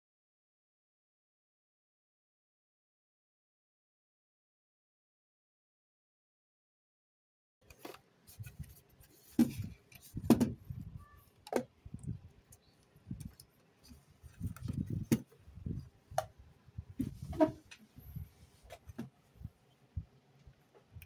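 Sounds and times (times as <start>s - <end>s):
handling knocks and thumps: 8.6s - 10.8s, 14.4s - 16.3s.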